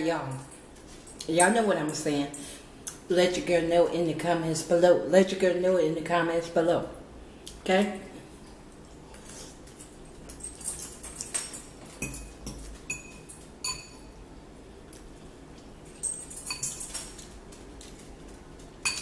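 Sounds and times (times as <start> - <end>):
fork clinking on ceramic bowl: 10.8 - 14.1.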